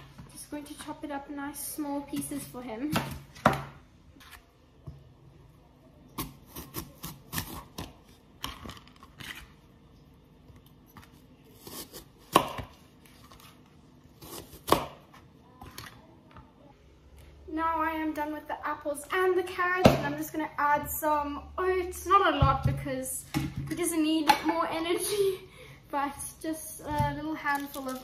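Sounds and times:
knife chopping on cutting board: 11.6s - 12.8s.

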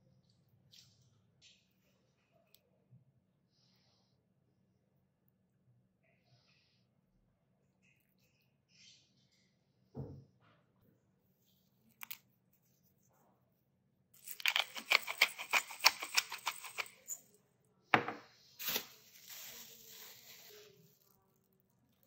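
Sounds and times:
pepper mill grinding: 14.2s - 17.2s.

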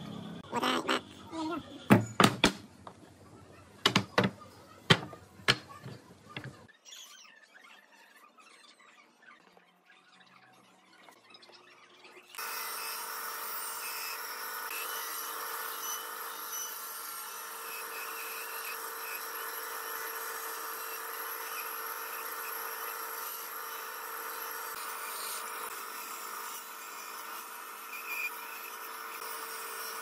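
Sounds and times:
electric saw cutting wood: 12.3s - 30.0s.

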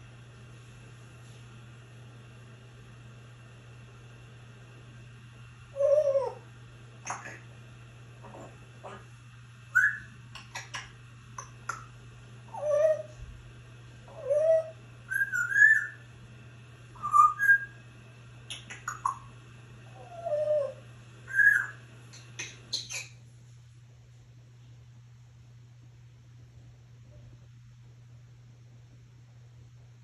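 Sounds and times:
parrot whistling gliding notes: 14.1s - 16.0s, 17.0s - 17.8s, 20.0s - 21.8s
parrot sharp clicks: 18.5s - 19.2s.

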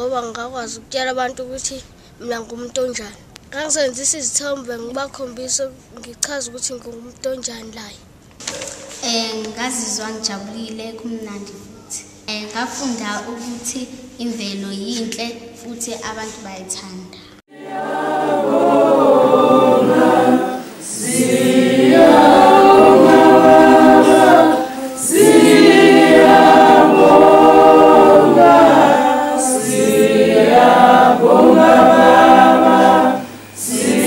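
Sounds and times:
group singing in harmony: 17.5s - 34.0s.

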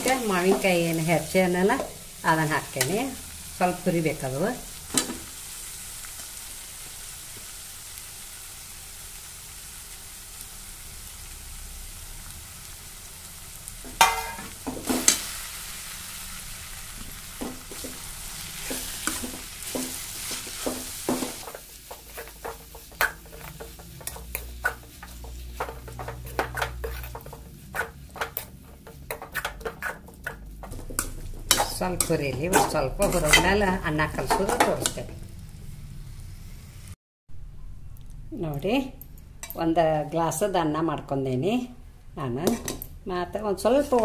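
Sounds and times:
food sizzling in oil: 0.0s - 37.0s
metal spoon scraping pan: 13.9s - 15.4s, 17.4s - 35.1s.

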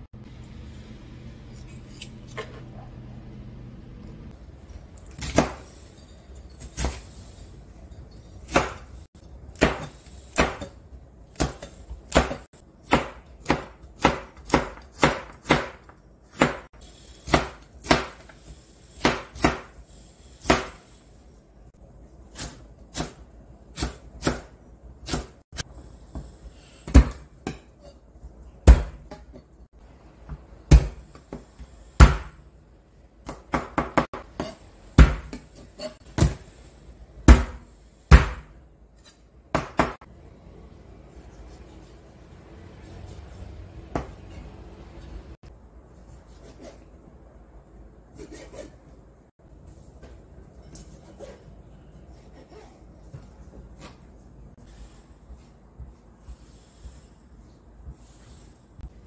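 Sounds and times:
knife chopping on plastic board: 11.3s - 16.7s.

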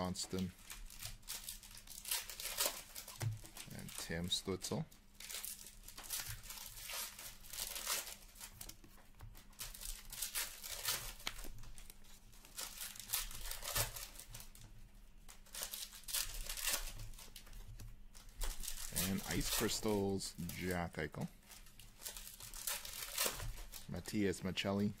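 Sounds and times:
foil wrappers crinkling and tearing: 0.0s - 25.0s.

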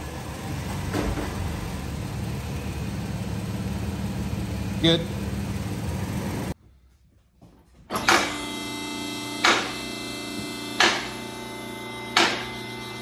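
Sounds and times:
vehicle engine idling: 0.0s - 6.6s
hammer striking metal: 9.4s - 9.9s, 10.6s - 11.2s, 12.0s - 12.7s.

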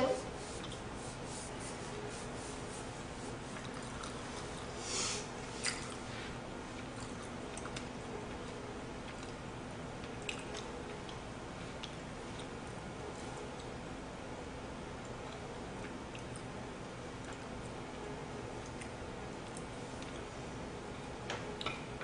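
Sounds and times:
steady low hum: 0.0s - 22.0s
faint chewing: 0.6s - 0.9s, 3.3s - 4.8s, 5.4s - 6.1s, 6.7s - 9.4s, 10.0s - 13.9s, 15.0s - 17.8s, 18.6s - 22.0s.

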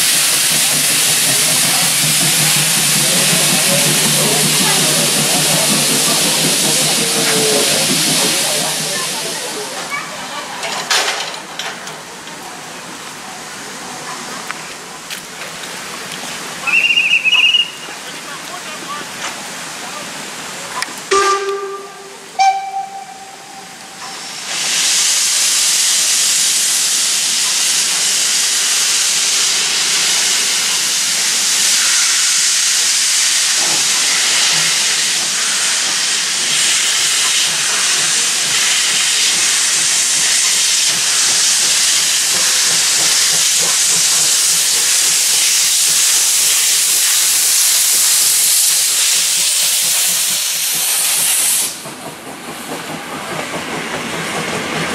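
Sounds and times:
steam hissing: 0.0s - 10.3s, 18.7s - 54.9s
steam locomotive whistle: 16.6s - 17.9s, 21.1s - 24.4s.

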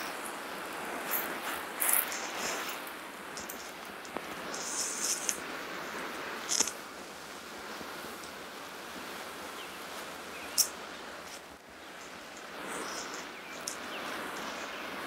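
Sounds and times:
steady background hiss: 0.0s - 15.0s
faint bird chirps: 11.8s - 15.0s.

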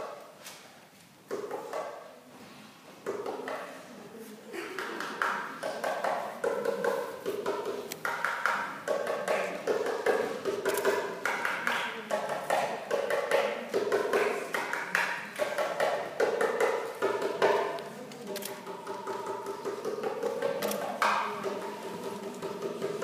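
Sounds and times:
goblet drum solo: 18.6s - 23.0s.

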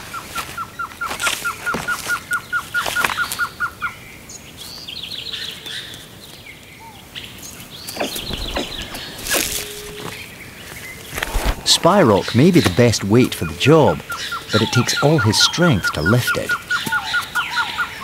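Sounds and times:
birds calling: 0.0s - 18.0s
high rapid bird trills: 7.4s - 18.0s.

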